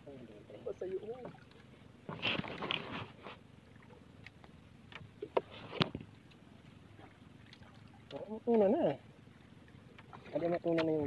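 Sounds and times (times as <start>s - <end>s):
sea and wind noise: 0.0s - 11.0s
clicks and knocks on boat: 4.2s - 6.4s, 10.0s - 11.0s.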